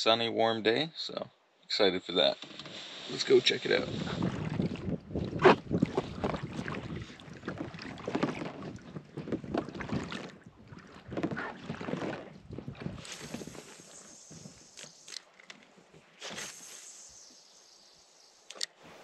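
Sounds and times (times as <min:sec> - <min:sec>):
kayak paddle splashing: 0:02.6 - 0:19.0
wind buffeting microphone: 0:03.6 - 0:14.7.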